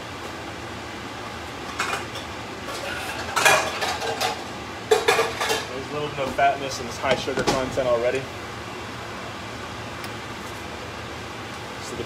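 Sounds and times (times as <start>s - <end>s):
metal pan and utensils clattering: 2.7s - 5.8s.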